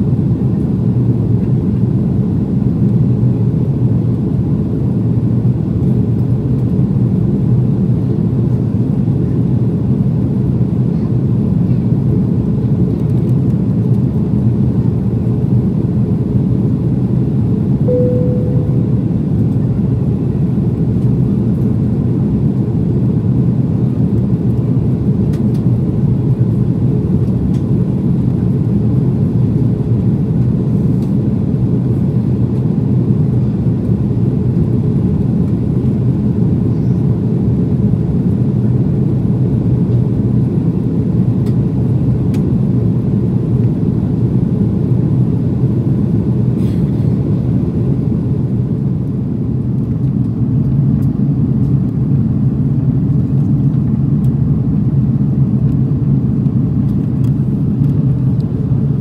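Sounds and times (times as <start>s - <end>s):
airliner cabin rumble: 0.0s - 59.0s.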